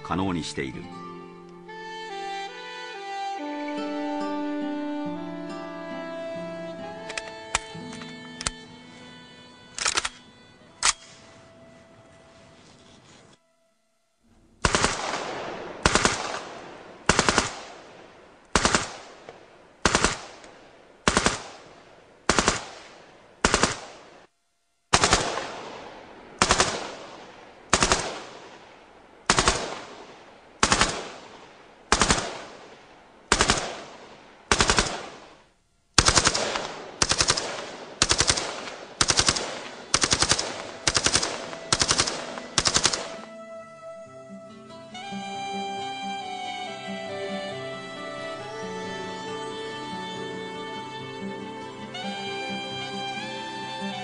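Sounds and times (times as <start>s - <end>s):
machine gun bursts with echo: 14.6s - 17.9s, 18.5s - 19.2s, 19.8s - 20.4s, 21.0s - 24.1s, 24.9s - 28.6s, 29.3s - 32.7s, 33.3s - 35.4s, 36.0s - 43.2s.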